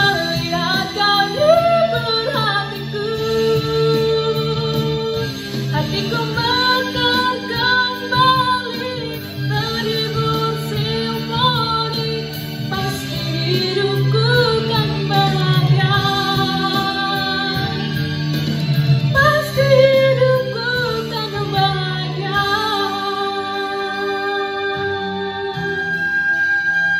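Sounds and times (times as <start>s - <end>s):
pop ballad backing music: 0.0s - 26.9s
woman singing into a microphone: 0.0s - 26.9s.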